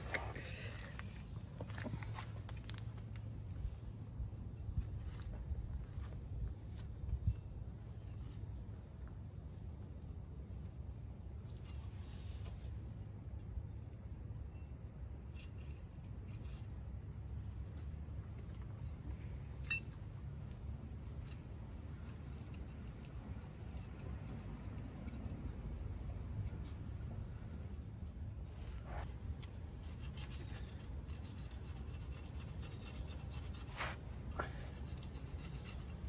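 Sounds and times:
scraper scraping metal surface: 0:28.7 - 0:36.0.

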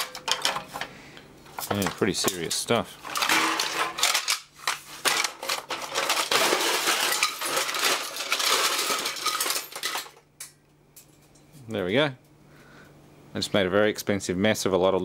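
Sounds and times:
plastic parts clattering on metal tray: 0:00.0 - 0:00.9, 0:01.5 - 0:10.2.

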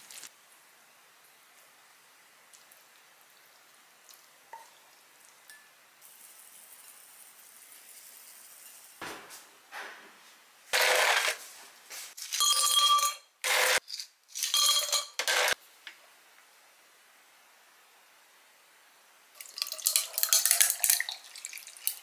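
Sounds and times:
ice cubes clinking into glass: 0:12.3 - 0:15.6.

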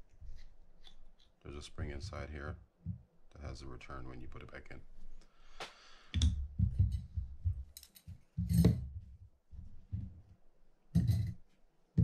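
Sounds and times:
metal parts thudding on table: 0:08.4 - 0:09.0, 0:11.0 - 0:11.4.

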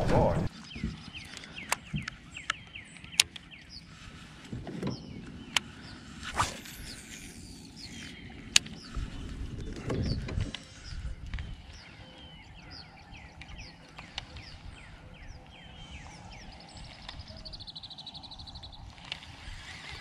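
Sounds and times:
bird chirps: 0:04.9 - 0:19.2.

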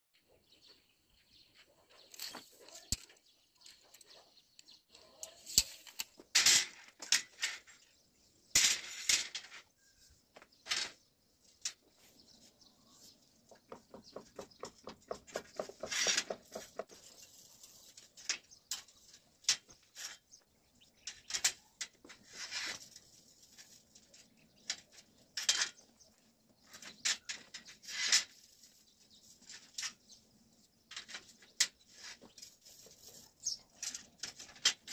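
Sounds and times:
steel bars clinking and scraping: 0:04.9 - 0:12.0, 0:15.8 - 0:34.9.

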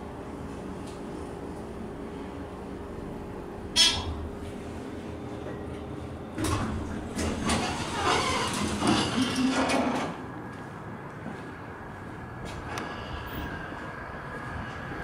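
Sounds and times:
glass door opening and shutting: 0:06.4 - 0:10.2
door squeak: 0:07.5 - 0:09.4.

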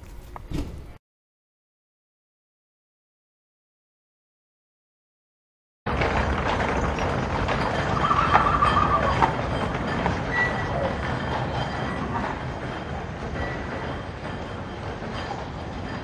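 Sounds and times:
train rattling on rails: 0:05.9 - 0:16.0
high wheel squeal: 0:06.7 - 0:16.0.

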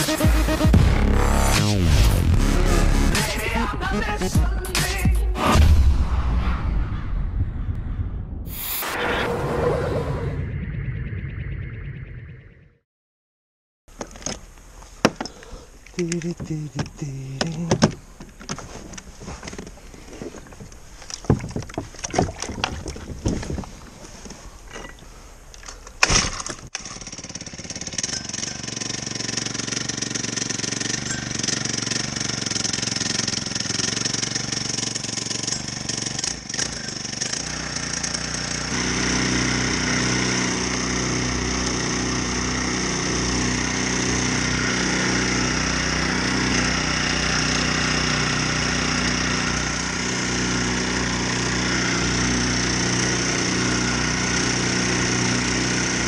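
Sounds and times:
small boat motor running: 0:15.2 - 0:24.1, 0:27.3 - 0:35.6, 0:36.2 - 0:56.0.

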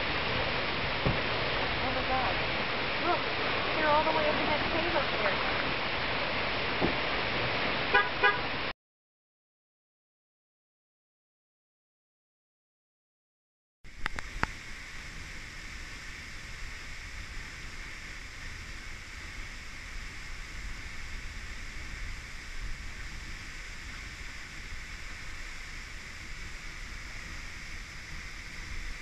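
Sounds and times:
waterfall roaring: 0:00.0 - 0:08.7, 0:13.9 - 0:29.0
wind rumble on microphone: 0:13.9 - 0:29.0.

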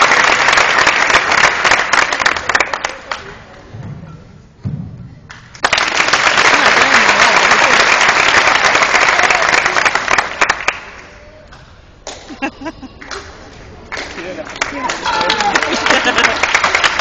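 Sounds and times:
audience applause: 0:00.0 - 0:03.4, 0:05.6 - 0:11.2, 0:12.9 - 0:17.0.

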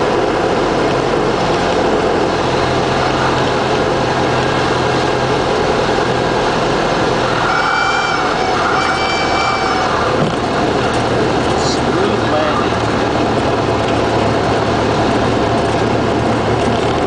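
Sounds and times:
rushing air noise: 0:00.0 - 0:17.0
small plane engine and propeller: 0:00.0 - 0:17.0
high-pitched tone: 0:07.3 - 0:10.3.

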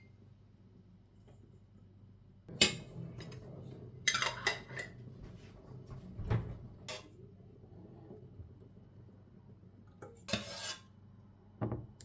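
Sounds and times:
metal spoon scraping a pot: 0:04.0 - 0:05.0, 0:10.0 - 0:11.0.

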